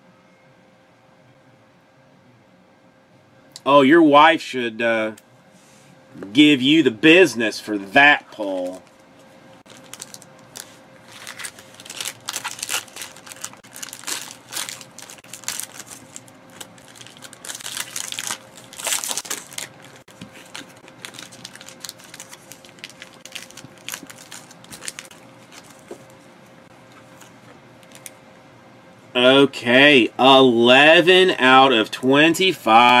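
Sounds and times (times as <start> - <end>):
foil wrapper crinkling: 9.6 - 26.1, 27.1 - 28.1.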